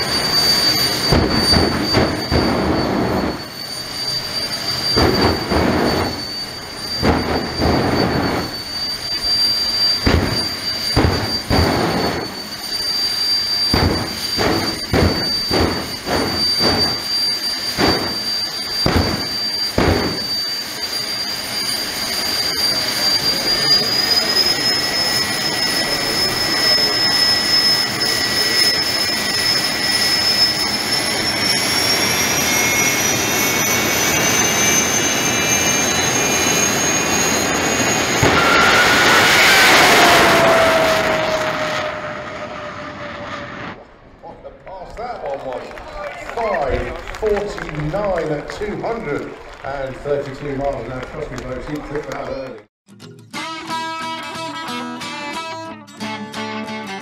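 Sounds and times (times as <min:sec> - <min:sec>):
loud afterburner blasts: 0:00.0 - 0:21.1, 0:36.3 - 0:44.2
turbine engine whine: 0:00.0 - 0:52.7.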